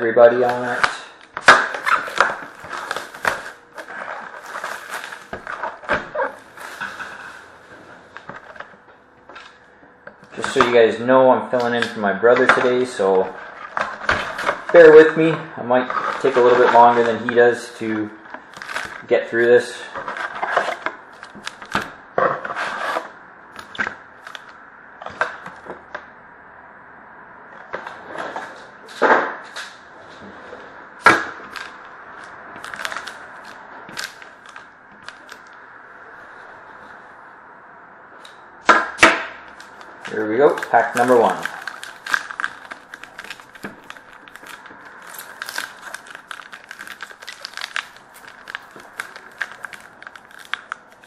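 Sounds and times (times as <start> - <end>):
rustling scrapes of packs: 1.8 - 8.2, 39.5 - 51.0.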